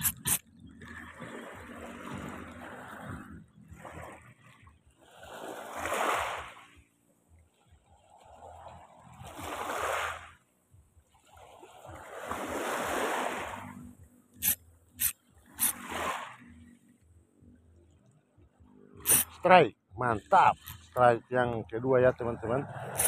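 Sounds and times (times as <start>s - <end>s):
fishing reel clicks: 0.0s - 0.4s, 14.4s - 15.8s, 19.0s - 19.4s
small waves washing on shore: 0.0s - 16.9s, 19.0s - 23.0s.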